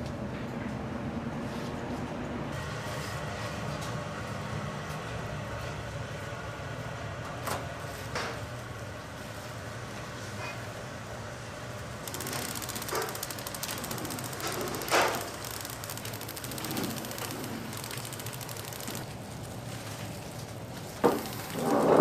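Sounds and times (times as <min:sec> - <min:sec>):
machinery humming: 0:11.0 - 0:22.0
fast fine mechanical ticking: 0:12.0 - 0:20.0, 0:21.0 - 0:22.0.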